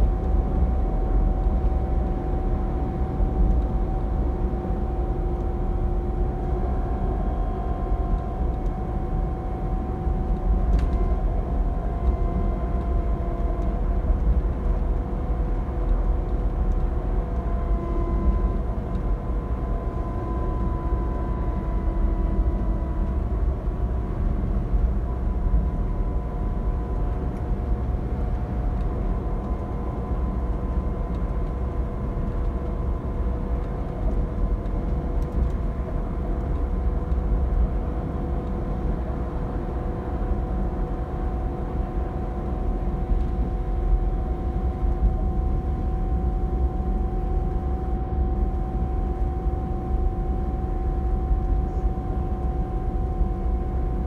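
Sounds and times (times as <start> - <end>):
coach engine and road rumble: 0.0 - 54.0
faint whining tones: 40.2 - 54.0.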